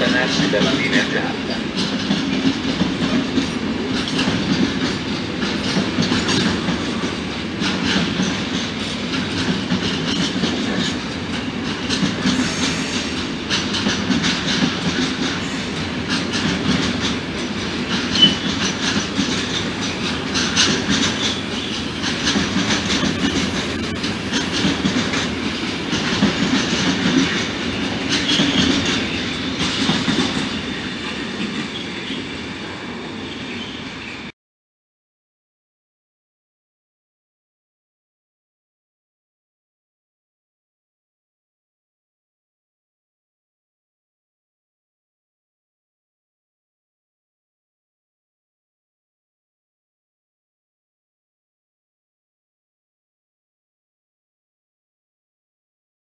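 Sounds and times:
freight train wheels clattering: 0.0 - 32.2.

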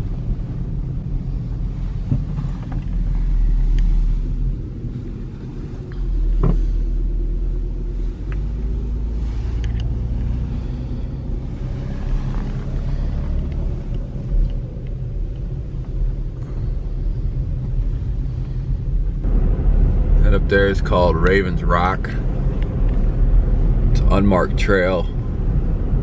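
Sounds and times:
car engine and tyres rumbling: 0.0 - 26.0.

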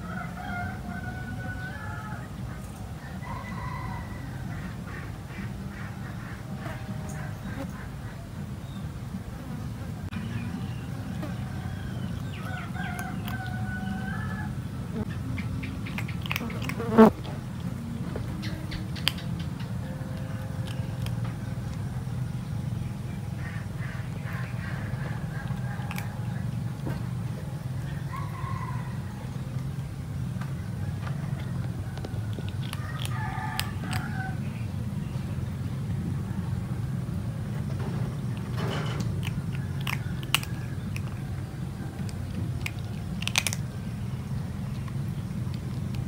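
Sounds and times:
steady low hum: 0.0 - 46.0
kitten crunching dry kibble: 11.4 - 14.2, 15.7 - 22.7, 23.4 - 30.4, 31.4 - 34.6, 37.4 - 46.0
steady low rumble: 17.1 - 46.0.

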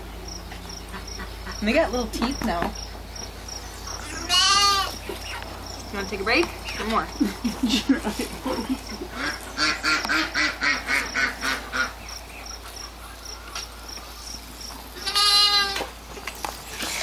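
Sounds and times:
calf bleat: 4.0 - 5.0, 15.0 - 15.9.

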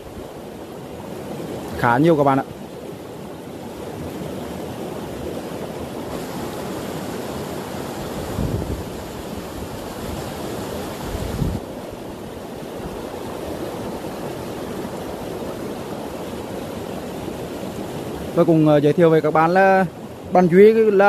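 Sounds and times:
stream water rushing: 0.0 - 21.0
wind buffeting microphone: 8.0 - 11.8.

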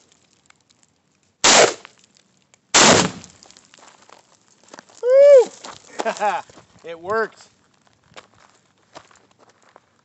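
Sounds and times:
rifle shots: 1.4 - 1.8, 2.8 - 3.3
exploding target bang: 2.8 - 3.3.

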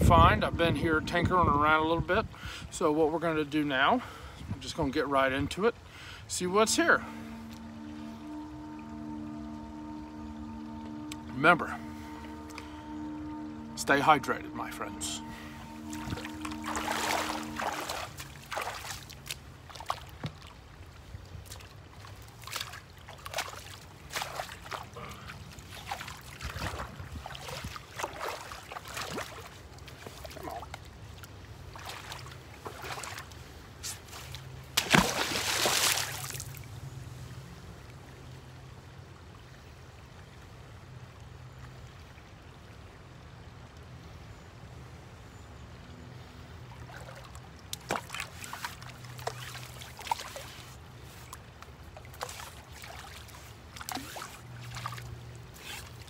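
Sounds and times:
boots sloshing through water and mud: 16.4 - 20.6, 21.4 - 36.6, 46.8 - 56.0
magnet splashing into water: 34.7 - 36.5.

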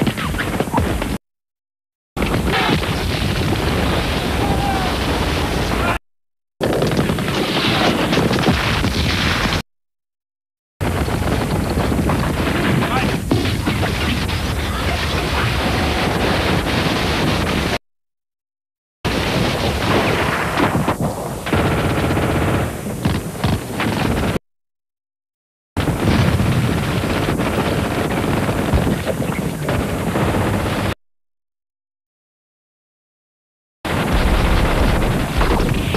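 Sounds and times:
rapid machine-gun fire: 6.6 - 9.6, 10.8 - 17.8, 19.1 - 24.4, 25.8 - 31.0.

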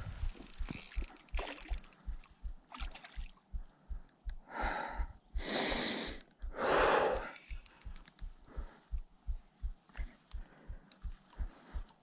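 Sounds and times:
spinning reel cranking knocks: 0.3 - 2.3
person gasping breaths: 3.7 - 7.5, 8.5 - 9.0, 10.0 - 12.0.

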